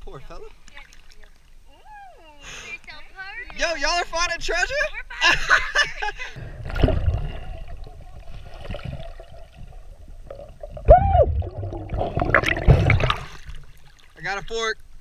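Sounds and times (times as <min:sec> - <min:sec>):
muffled underwater water noise: 0:00.0 - 0:03.7, 0:06.2 - 0:15.0
camera plunging into water: 0:06.6 - 0:14.1.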